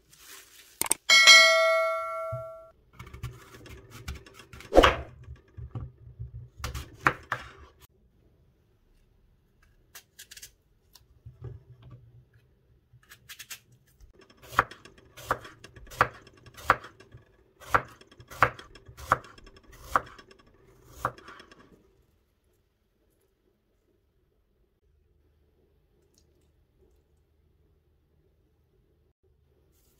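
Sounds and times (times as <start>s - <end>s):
knife slicing an apple: 3.0s - 5.1s, 17.6s - 20.2s.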